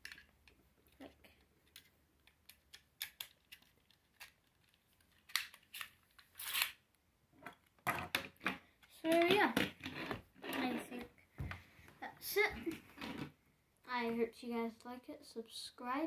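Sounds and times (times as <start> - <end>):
small plastic clicks: 0.0 - 6.7.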